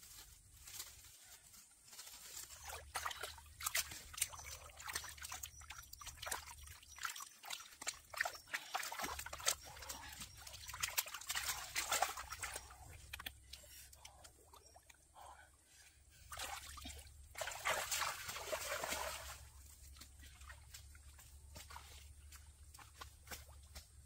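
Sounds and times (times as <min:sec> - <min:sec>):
water splashing and trickling: 0:01.8 - 0:24.0
wet mud squelches: 0:02.2 - 0:24.0
hands digging in wet mud: 0:02.4 - 0:14.2.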